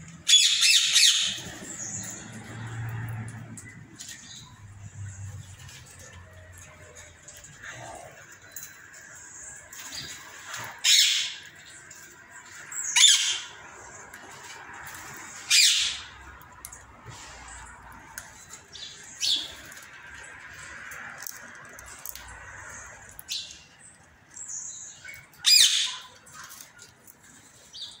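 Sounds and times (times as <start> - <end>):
parakeets squawking: 0.2 - 2.3, 10.6 - 11.8, 12.7 - 14.0, 15.3 - 16.2, 25.4 - 26.2.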